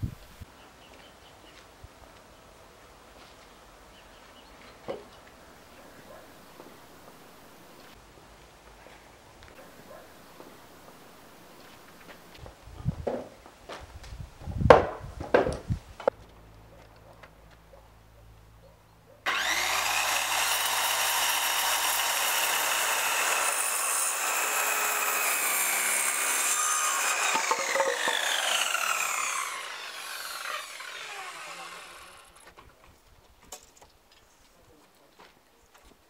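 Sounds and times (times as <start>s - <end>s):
circular saw cutting wood: 19.3s - 32.5s.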